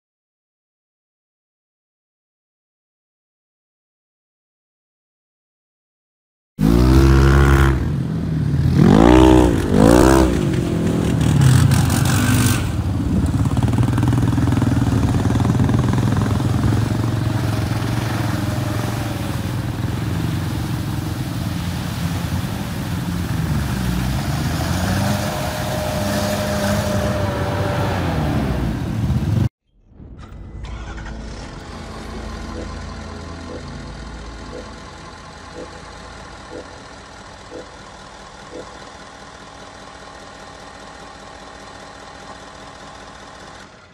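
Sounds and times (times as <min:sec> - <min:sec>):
vehicle engine revving: 0:06.6 - 0:29.5, 0:30.7 - 0:43.9
faint whine: 0:29.8 - 0:39.2.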